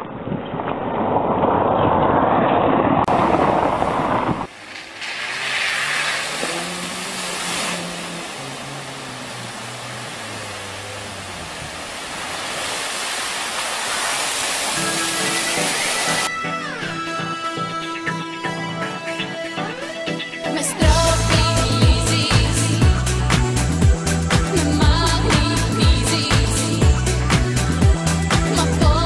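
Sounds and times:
loud rushing noise: 0:00.8 - 0:16.3
water splashing: 0:02.3 - 0:16.3
car engine revving: 0:03.1 - 0:16.3.

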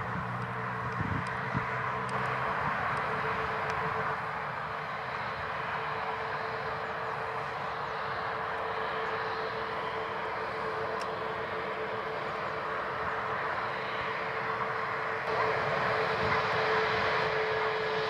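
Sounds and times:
jet engines idling: 0:00.0 - 0:18.0.

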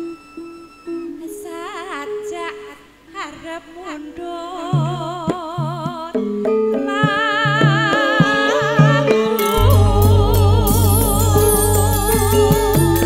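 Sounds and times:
woman singing into a microphone: 0:00.0 - 0:13.0
band accompaniment with bass line: 0:08.6 - 0:13.0.

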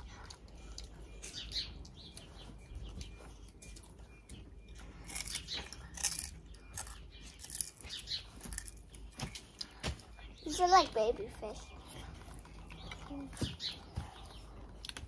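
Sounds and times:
children eating crunchily: 0:00.0 - 0:15.0
faint birds chirping: 0:00.0 - 0:15.0.

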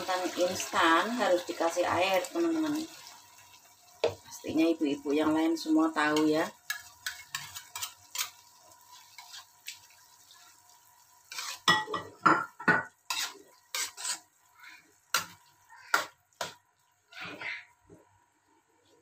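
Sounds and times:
spatula scraping and clattering in wok: 0:06.2 - 0:09.8, 0:11.3 - 0:14.3.

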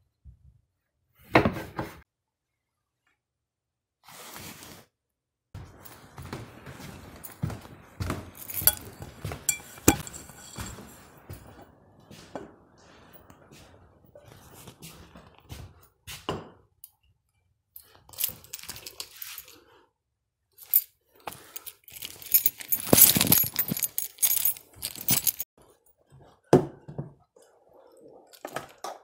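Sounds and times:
light metallic clinks: 0:08.4 - 0:11.0, 0:21.6 - 0:25.5.

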